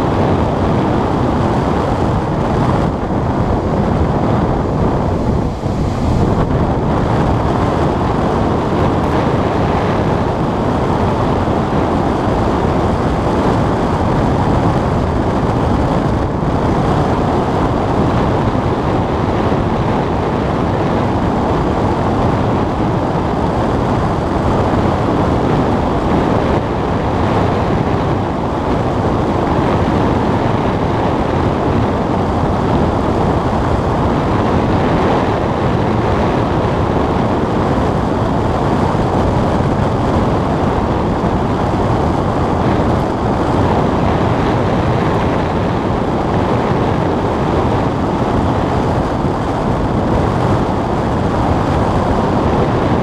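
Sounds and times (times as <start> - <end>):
airflow rushing over cockpit: 0.0 - 53.0.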